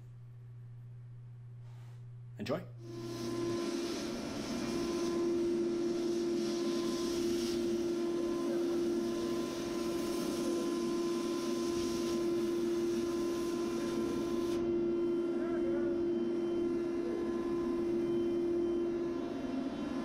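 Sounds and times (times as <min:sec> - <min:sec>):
steady machine hum: 0:00.0 - 0:20.0
plasma cutter hissing: 0:02.9 - 0:14.6.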